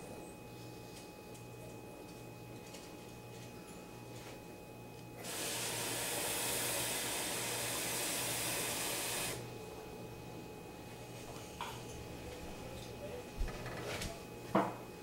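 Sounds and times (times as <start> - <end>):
kitchen tap running: 5.2 - 9.4.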